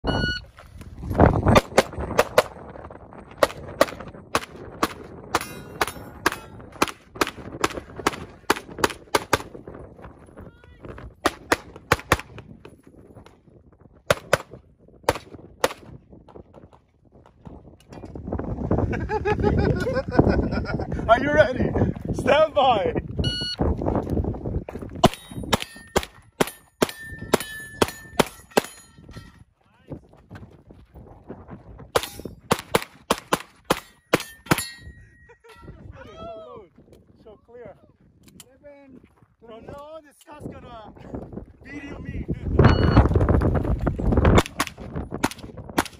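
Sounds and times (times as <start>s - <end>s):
pistol shots: 11.2s - 12.4s, 14.1s - 15.9s, 32.0s - 34.7s, 44.4s - 45.9s
steel targets ringing: 25.1s - 29.2s, 33.8s - 35.7s.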